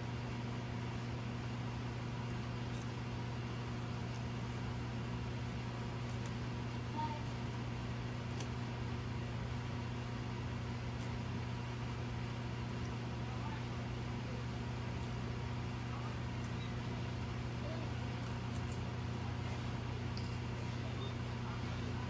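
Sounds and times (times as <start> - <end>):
low machine hum: 0.0 - 22.0.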